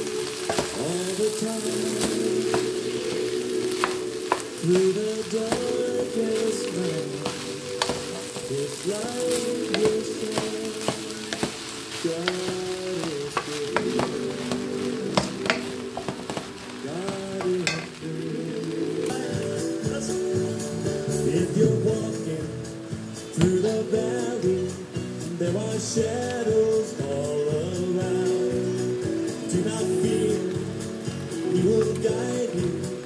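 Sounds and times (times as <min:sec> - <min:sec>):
wooden spoon scraping pan: 0:00.0 - 0:18.0
background music with melody: 0:00.0 - 0:33.0
fried rice sizzling: 0:00.0 - 0:33.0.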